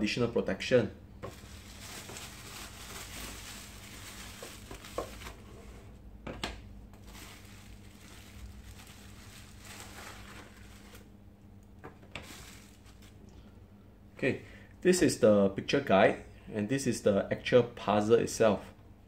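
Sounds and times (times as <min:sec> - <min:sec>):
bubble wrap crinkling: 0:01.2 - 0:05.5, 0:06.9 - 0:11.2, 0:11.9 - 0:13.3.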